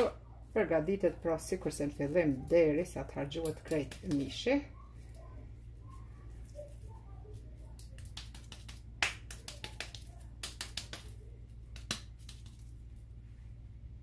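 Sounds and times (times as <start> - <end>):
hands patting minced meat: 3.2 - 4.4, 6.4 - 13.0
wet slaps: 7.8 - 12.7.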